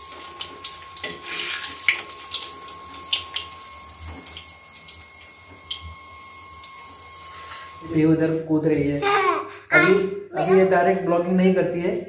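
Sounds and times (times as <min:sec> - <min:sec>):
deep-frying in hot oil: 0:00.0 - 0:07.9.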